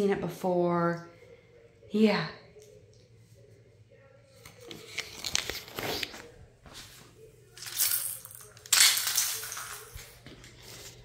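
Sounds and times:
crinkling rustling noise: 4.8 - 7.0.

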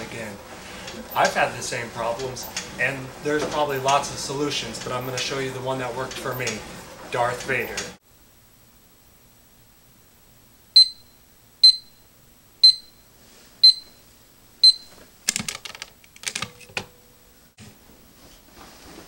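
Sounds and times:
alarm clock beeps: 10.8 - 14.0, 14.6 - 15.0.

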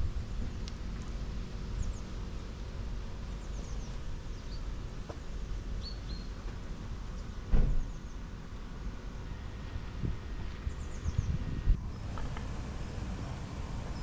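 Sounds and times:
steady low rumble: 9.1 - 14.0
high falling bird chirps: 11.8 - 14.0.

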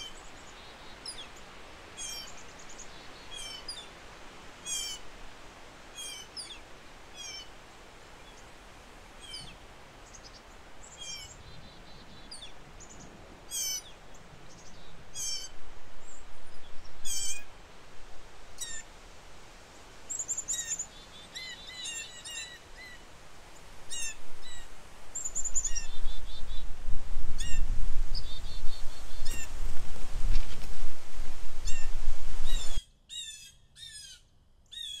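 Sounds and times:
small birds chirping: 0.0 - 4.0, 9.2 - 17.6, 18.6 - 18.9, 20.0 - 35.0
wind gusting on microphone: 11.3 - 20.1, 23.0 - 32.8.

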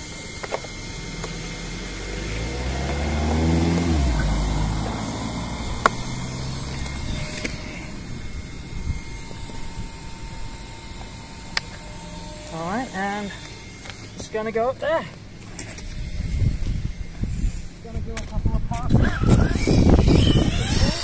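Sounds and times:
car passing by: 1.4 - 8.0.

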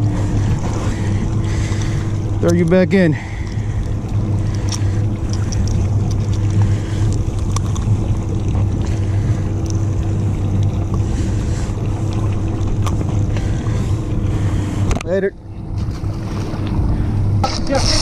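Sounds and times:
boat engine idling: 0.0 - 18.0
water noise: 0.0 - 18.0
wind: 0.0 - 18.0.

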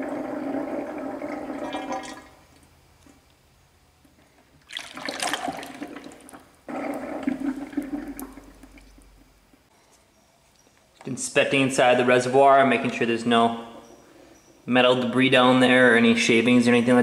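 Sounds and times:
oil pouring and splashing: 4.5 - 9.2.

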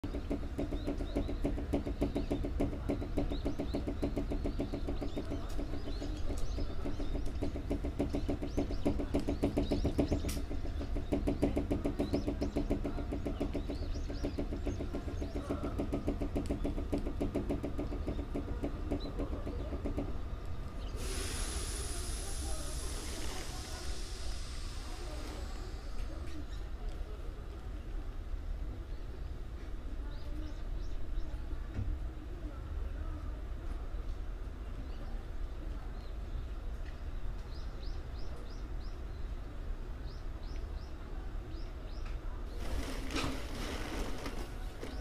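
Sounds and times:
train air compressor pulsing: 0.0 - 20.2, 20.8 - 26.7, 42.6 - 45.0
door rattling: 0.0 - 20.8.

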